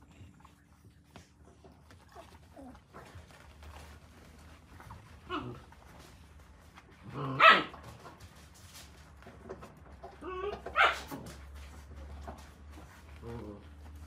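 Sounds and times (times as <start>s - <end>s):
puppy whining: 0.0s - 6.1s, 10.0s - 11.3s
puppy yelping: 10.0s - 11.3s.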